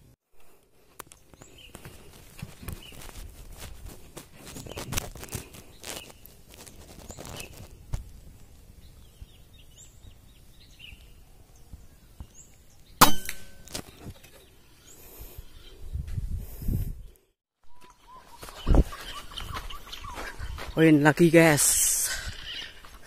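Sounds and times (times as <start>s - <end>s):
rustling and handling noises: 0.4s - 8.6s
air rifle shot: 13.0s - 13.6s
faint bird chirps: 17.0s - 20.8s.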